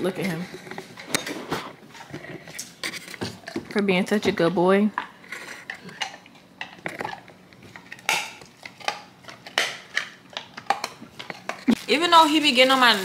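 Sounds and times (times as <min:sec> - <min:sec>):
dog chewing a treat: 0:05.3 - 0:11.8.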